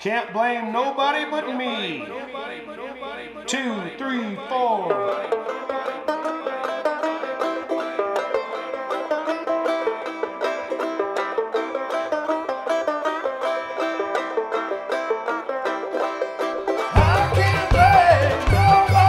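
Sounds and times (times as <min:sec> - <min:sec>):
upbeat plucked-string tune: 0:03.6 - 0:19.0
song with heavy low beat: 0:17.0 - 0:19.0.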